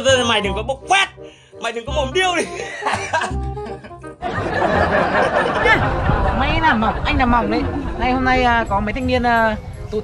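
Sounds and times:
music with bass line: 0:01.9 - 0:10.0
young man laughing: 0:02.4 - 0:06.0.

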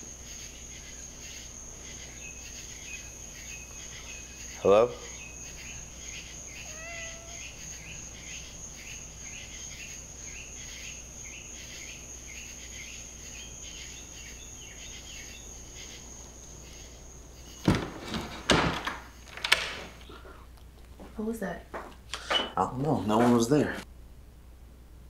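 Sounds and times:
high insect trill: 0:00.0 - 0:20.5
crickets chirping: 0:00.0 - 0:23.9.

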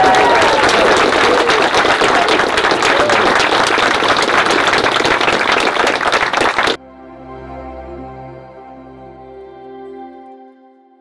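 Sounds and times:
person whooping: 0:00.0 - 0:03.4
crowd applauding: 0:00.0 - 0:06.8
soft slow instrumental music: 0:06.8 - 0:11.0.

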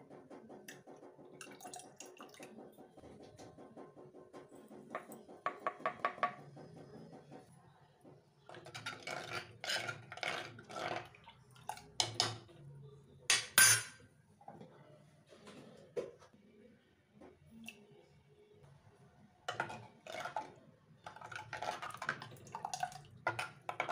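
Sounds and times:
metal spoon stirring liquid: 0:08.5 - 0:12.6, 0:19.5 - 0:23.9
steel plate clinking on clay pot: 0:13.3 - 0:14.0.

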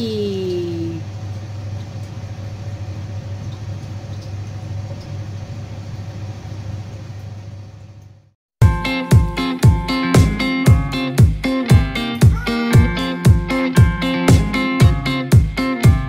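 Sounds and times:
low background hum: 0:00.0 - 0:08.3
plucked guitar music: 0:08.6 - 0:16.0.

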